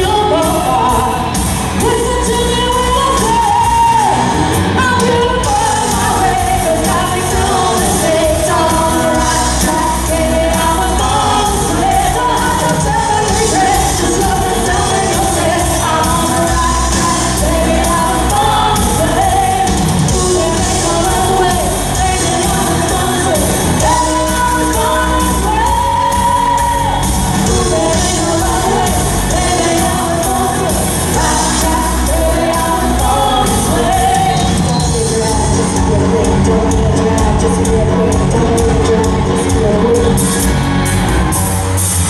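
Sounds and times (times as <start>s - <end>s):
woman singing: 0.0s - 40.6s
bass guitar: 0.0s - 42.0s
drum kit: 0.0s - 42.0s
electric guitars: 0.0s - 42.0s
live pop-rock band: 0.0s - 42.0s.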